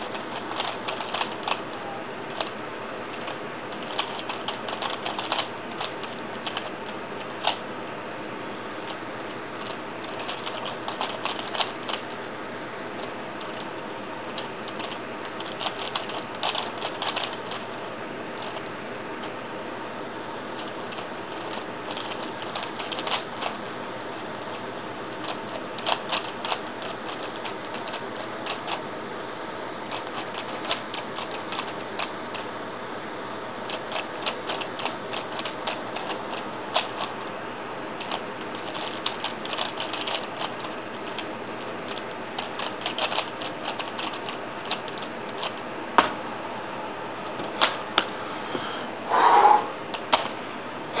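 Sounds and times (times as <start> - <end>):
plastic cube layers clicking: 0.0 - 1.7, 3.2 - 6.7, 14.4 - 17.6, 41.9 - 45.6.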